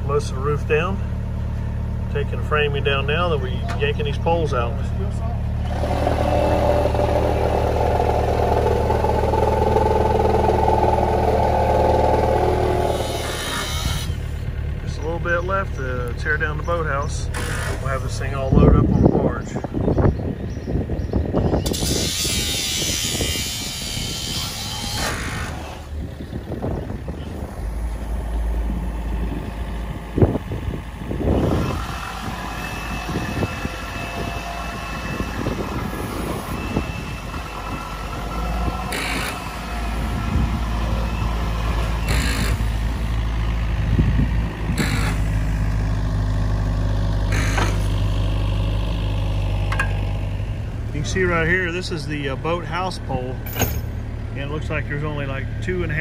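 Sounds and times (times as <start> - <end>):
excavator diesel engine running: 0.0 - 19.4, 23.1 - 56.0
sharp metallic clanks: 53.4 - 54.0.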